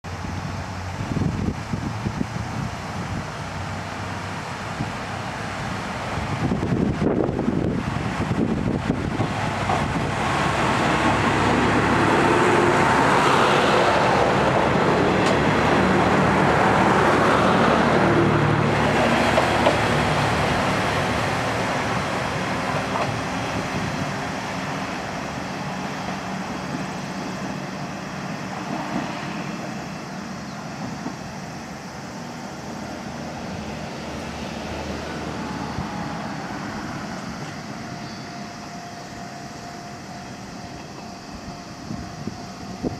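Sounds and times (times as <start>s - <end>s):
diesel railcar accelerating: 0.0s - 42.9s.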